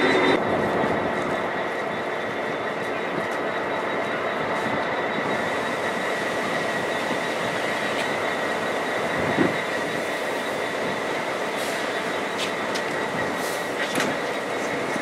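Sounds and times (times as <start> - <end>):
diesel locomotive idling: 0.0 - 15.0.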